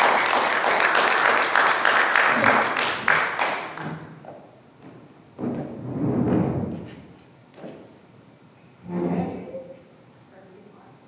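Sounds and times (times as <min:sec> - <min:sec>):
audience applauding: 0:00.0 - 0:04.1
thump: 0:05.4 - 0:07.1.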